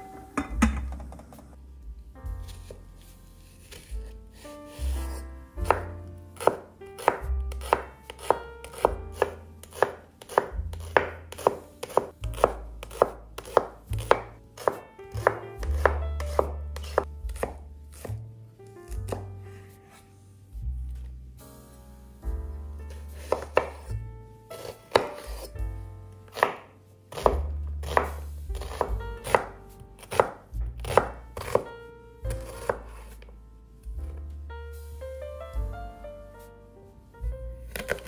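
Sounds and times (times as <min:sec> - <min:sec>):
knife slicing on wooden board: 0:03.4 - 0:18.2, 0:22.9 - 0:23.9, 0:24.6 - 0:25.5, 0:26.3 - 0:31.6, 0:32.3 - 0:33.3, 0:37.7 - 0:38.0.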